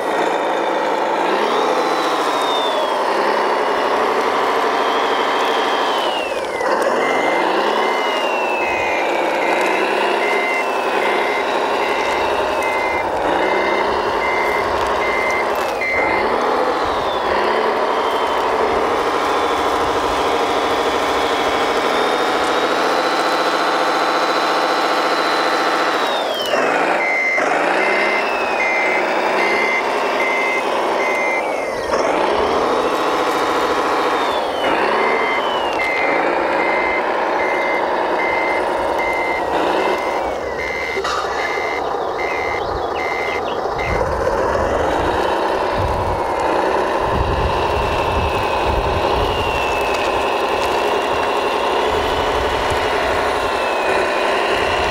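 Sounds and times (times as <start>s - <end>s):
reversing beeper: 0.0s - 54.9s
simulated diesel engine revving: 0.0s - 54.9s.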